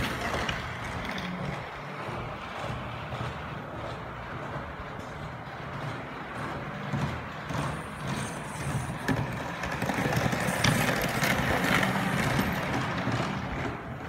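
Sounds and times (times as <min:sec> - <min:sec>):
low motor hum: 0:00.0 - 0:14.0
model train wheels clattering: 0:00.0 - 0:14.0.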